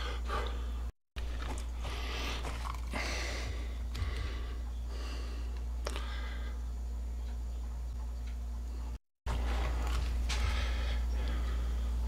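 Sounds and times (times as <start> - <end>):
steady low hum: 0.0 - 12.0
soft breathing: 1.6 - 6.8, 10.2 - 12.0.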